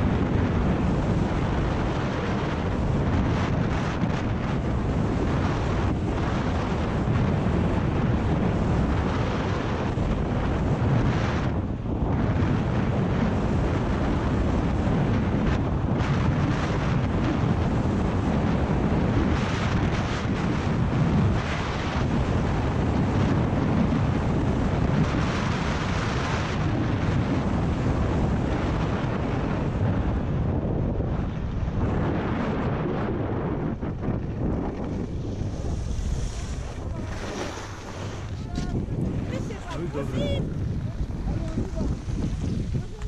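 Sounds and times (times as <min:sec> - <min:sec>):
wind buffeting microphone: 0:00.0 - 0:43.0
skis hissing on snow: 0:35.6 - 0:38.1.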